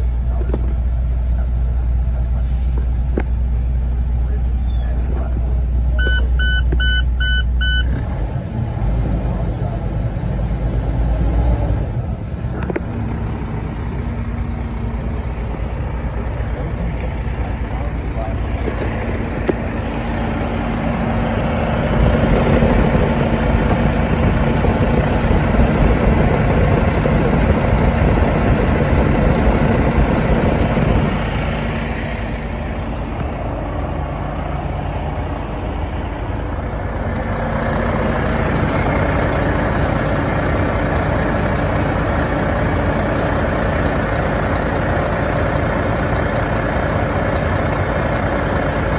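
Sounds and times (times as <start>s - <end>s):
diesel truck engine idling: 0.0s - 48.9s.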